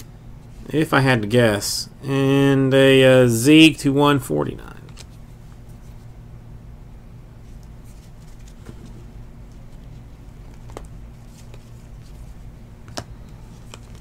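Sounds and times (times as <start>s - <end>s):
low steady hum: 0.0s - 14.0s
cards sliding and flicking: 4.8s - 6.1s, 7.5s - 14.0s.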